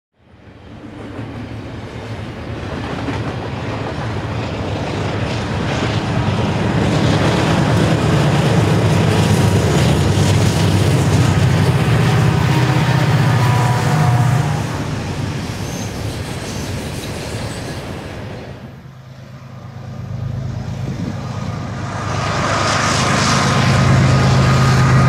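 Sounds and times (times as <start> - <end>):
diesel locomotive engine drone: 0.2 - 25.0
train wheels clicking over rails: 0.9 - 12.6.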